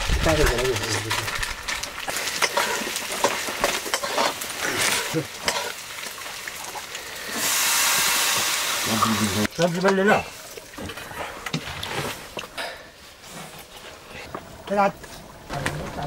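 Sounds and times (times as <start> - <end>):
food sizzling in a pan: 0.6 - 10.5
spoon scraping and clicking: 2.4 - 4.4.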